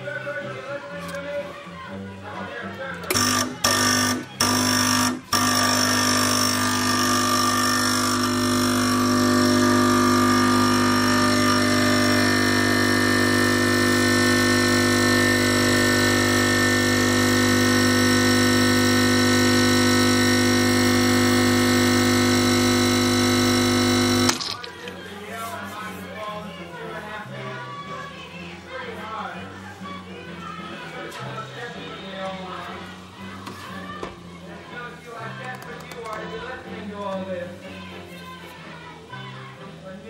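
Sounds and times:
espresso machine pump humming: 3.1s - 25.0s.

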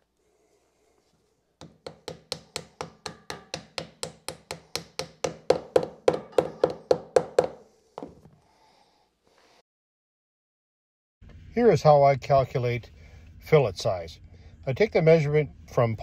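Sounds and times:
hammer knocking on wood: 1.6s - 8.3s.

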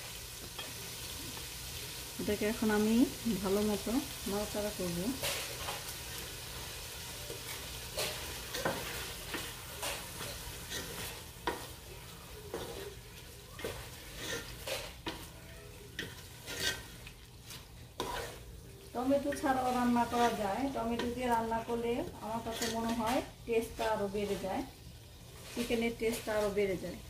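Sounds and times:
food sizzling in hot oil: 0.0s - 27.0s
spoon scraping pot: 7.2s - 11.8s, 12.4s - 15.3s, 15.9s - 18.5s, 19.1s - 21.3s, 22.3s - 24.4s.

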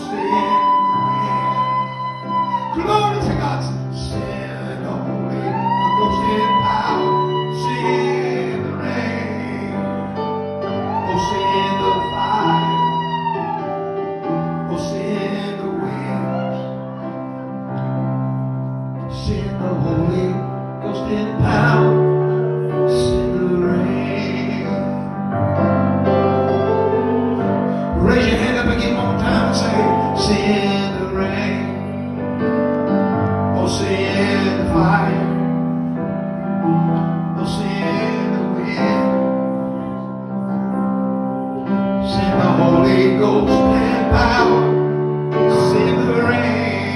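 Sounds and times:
gospel singing: 0.0s - 13.6s, 27.7s - 32.0s, 33.6s - 35.7s, 37.3s - 39.3s, 42.0s - 46.9s
electric keyboard chords: 0.0s - 46.9s.

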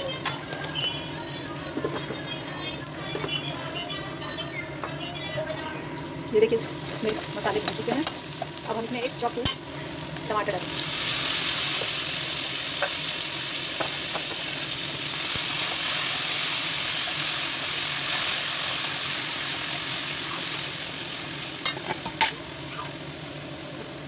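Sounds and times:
food sizzling in hot oil: 0.0s - 24.0s
spatula tapping pan: 6.9s - 9.6s.

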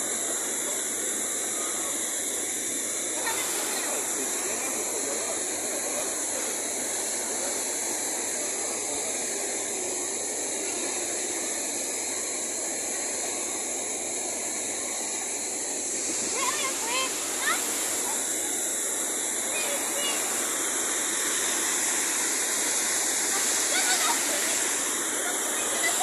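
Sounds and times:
waterfall roaring: 0.0s - 26.0s.

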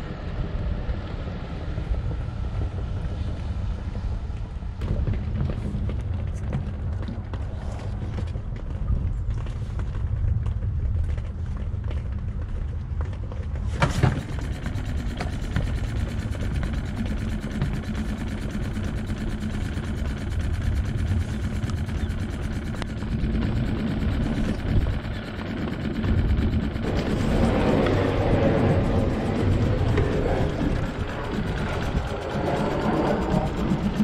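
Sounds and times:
wind on microphone: 0.0s - 34.0s
outboard motor running: 12.0s - 34.0s.

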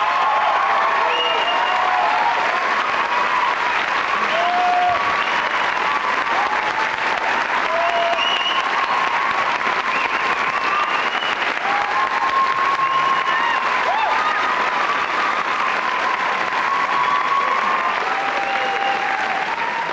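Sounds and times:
audience applauding: 0.0s - 19.9s
short whistles: 8.2s - 8.7s, 9.9s - 11.5s.

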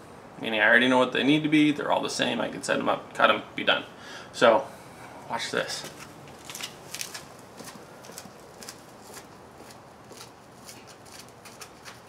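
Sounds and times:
footsteps on concrete: 5.7s - 12.0s.

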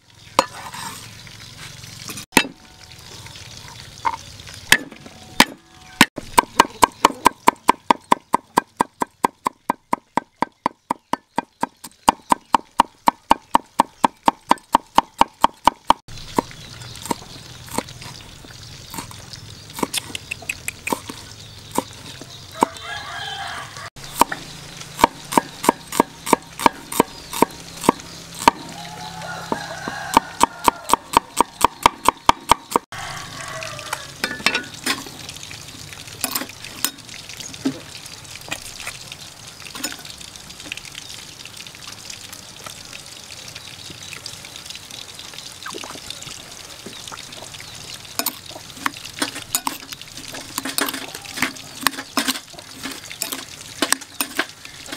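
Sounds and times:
cleaver chopping on wooden board: 25.0s - 28.6s.

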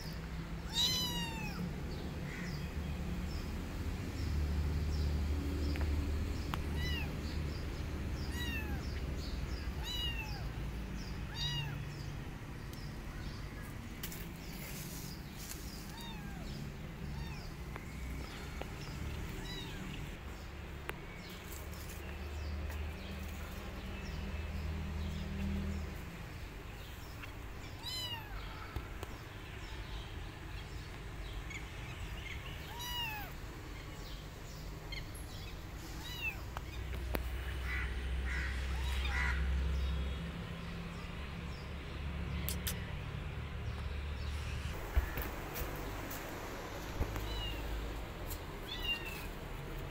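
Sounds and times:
kitten meowing: 0.7s - 1.6s, 6.7s - 7.1s, 8.3s - 8.8s, 9.8s - 10.4s, 11.3s - 11.8s, 15.9s - 16.4s, 17.2s - 17.4s, 19.4s - 19.9s, 27.8s - 28.4s, 32.6s - 33.4s, 36.0s - 36.8s, 48.7s - 49.3s.

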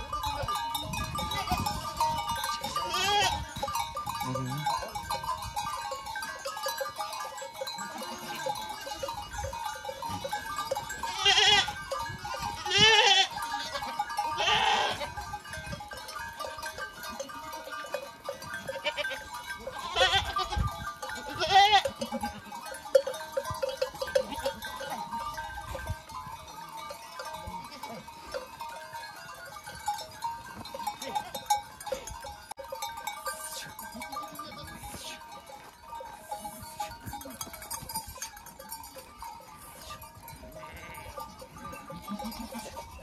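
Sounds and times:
goats bleating: 2.6s - 3.6s, 7.9s - 8.8s, 11.0s - 11.8s, 12.4s - 15.2s, 17.2s - 20.6s, 21.2s - 22.6s, 39.8s - 42.8s.

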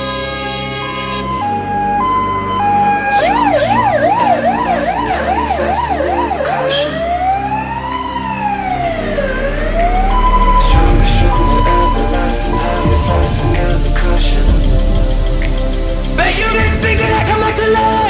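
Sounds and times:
fire engine siren: 0.0s - 14.3s
diesel engine hum: 0.0s - 18.0s.

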